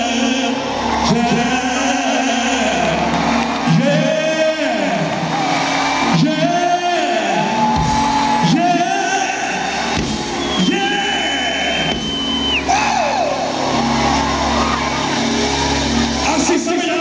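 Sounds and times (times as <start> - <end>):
man singing into microphone: 0.0 - 3.1, 3.7 - 5.2
live band playing: 7.6 - 17.0.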